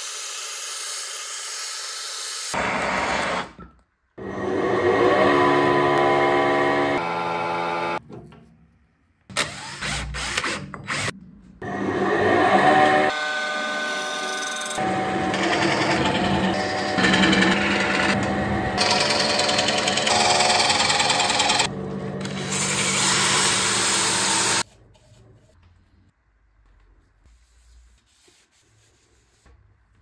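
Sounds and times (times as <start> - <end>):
wood lathe humming: 11.7 - 24.6
drill-driven sanding pad: 22.4 - 24.6.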